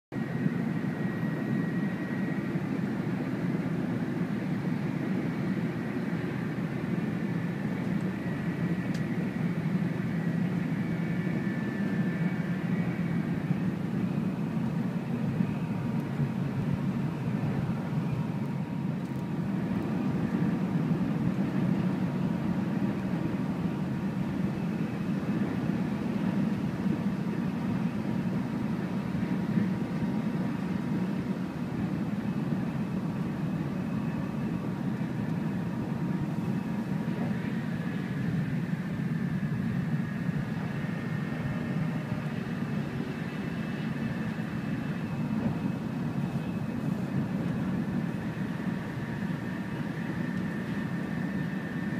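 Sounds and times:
faint steady whine: 0.1 - 51.9
train rumble: 0.1 - 51.9.

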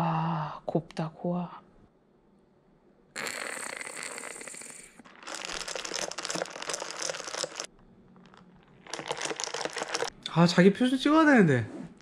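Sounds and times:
straw stirring foam in a glass: 5.0 - 10.1.

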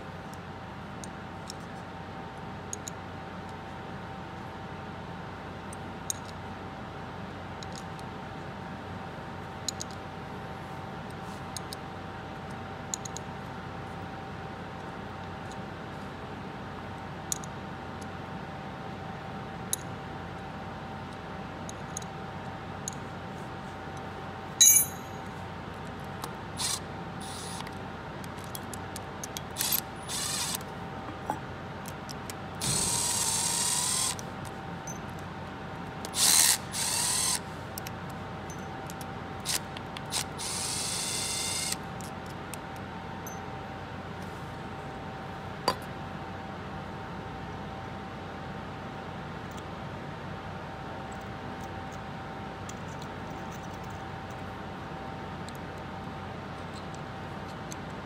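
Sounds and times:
sharp metallic clink: 24.6 - 25.3
cordless drill running: 26.6 - 27.6, 29.6 - 30.6, 32.6 - 34.2, 36.1 - 37.4, 39.5 - 41.8.

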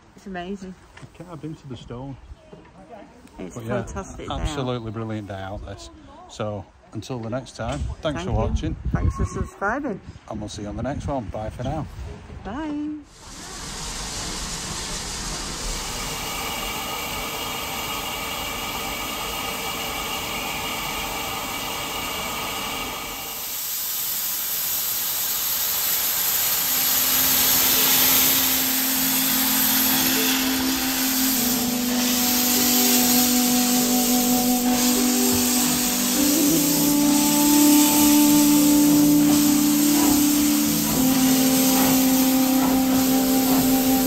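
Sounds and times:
steam hissing: 13.1 - 44.0
steady low notes: 26.6 - 44.0.

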